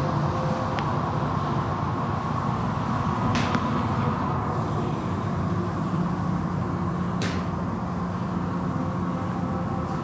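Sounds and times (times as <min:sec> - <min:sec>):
car wash machinery rumble: 0:00.0 - 0:10.0.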